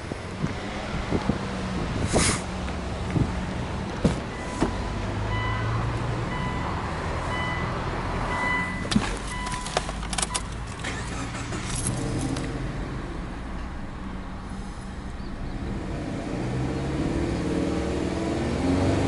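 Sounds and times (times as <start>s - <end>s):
car warning chime beeping: 4.3s - 10.6s
key clinking at ignition: 9.3s - 12.5s.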